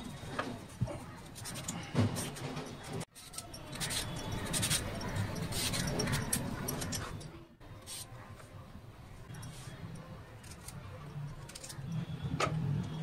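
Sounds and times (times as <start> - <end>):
peeler scraping cucumber skin: 3.2 - 6.4, 10.4 - 11.9.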